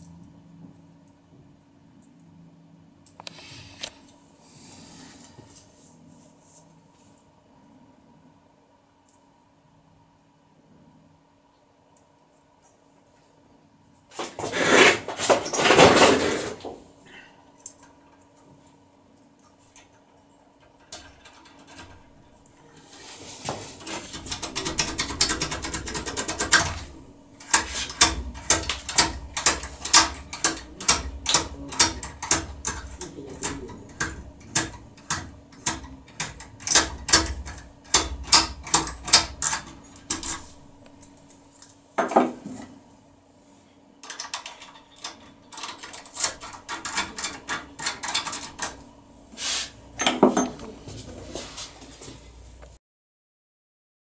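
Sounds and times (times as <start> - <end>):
lock pick rattling and clicking: 24.1 - 40.6, 44.0 - 48.8.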